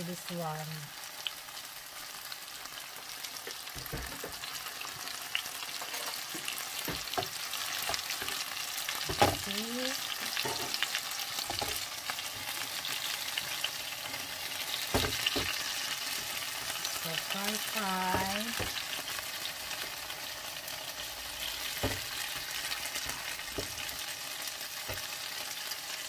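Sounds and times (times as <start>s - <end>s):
sausages sizzling in a pan: 0.0s - 26.0s
spatula scraping a pan: 5.6s - 9.2s.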